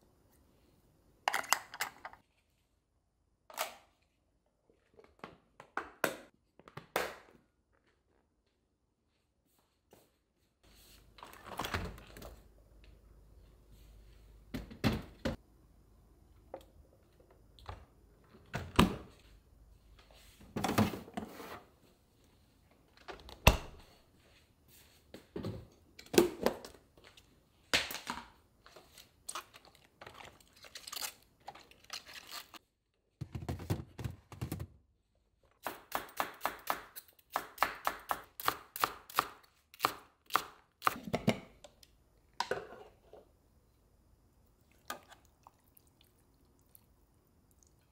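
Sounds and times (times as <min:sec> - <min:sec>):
kitchen knocks and thumps: 0:14.5 - 0:15.4, 0:33.2 - 0:34.8.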